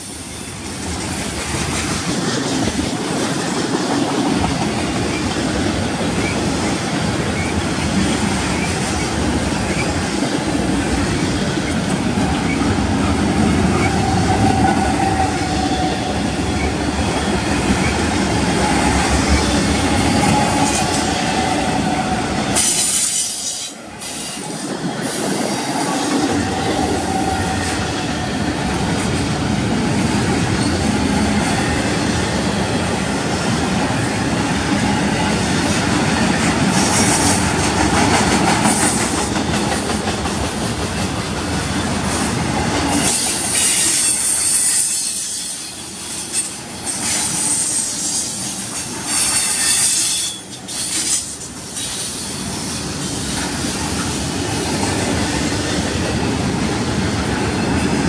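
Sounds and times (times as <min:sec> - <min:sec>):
train wheels clattering on rail: 0:00.0 - 0:58.0
high-pitched wheel squeals: 0:49.1 - 0:52.5.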